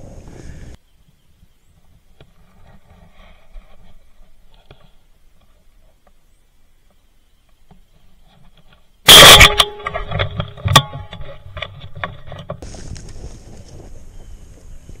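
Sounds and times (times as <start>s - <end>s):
loud shotgun blast: 9.1s - 9.9s
sharp knocks and rattles: 9.5s - 13.1s.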